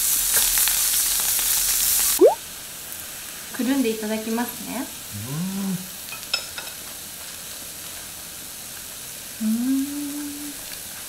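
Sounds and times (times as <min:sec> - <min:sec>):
food sizzling on grill plate: 0:00.0 - 0:11.0
closed-mouth hum of enjoyment: 0:02.2 - 0:02.4, 0:05.1 - 0:05.9, 0:09.4 - 0:10.6.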